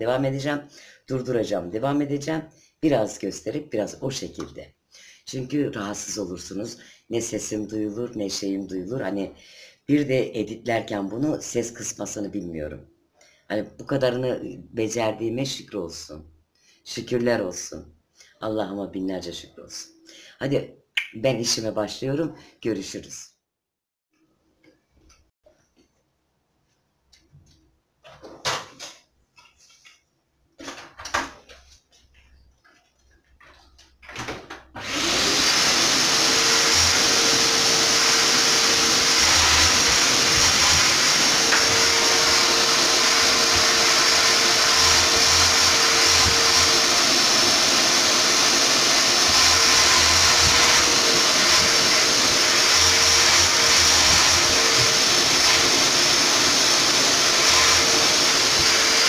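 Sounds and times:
vacuum cleaner running: 34.8 - 59.0.

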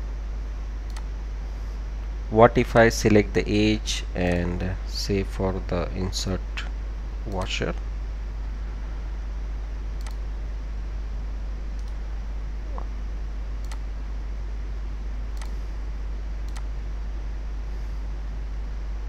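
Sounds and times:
steady low hum: 0.0 - 19.0
computer mouse clicks: 0.9 - 1.1, 10.0 - 10.2, 11.8 - 12.0, 13.6 - 13.8, 15.4 - 15.6, 16.5 - 16.7.

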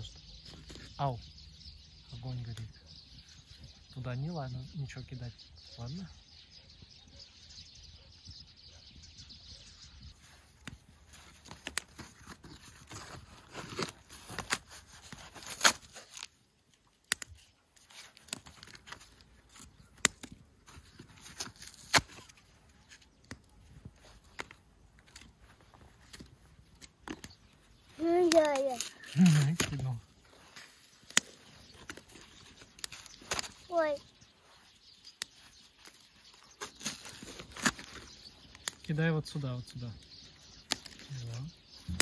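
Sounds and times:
campfire crackling and popping: 15.6 - 17.4, 18.1 - 22.3, 28.0 - 29.9, 31.0 - 33.9.

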